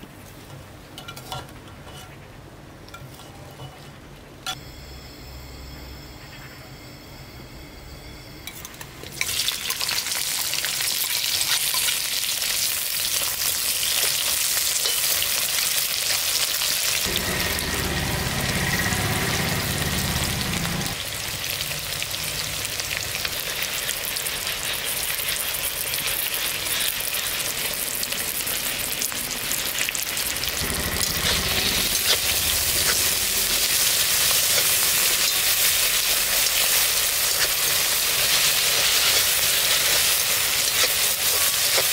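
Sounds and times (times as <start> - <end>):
metal spoon scraping a wok: 1.0 - 2.2, 2.9 - 4.0, 30.6 - 41.9
vegetables sizzling in hot oil: 9.0 - 41.9.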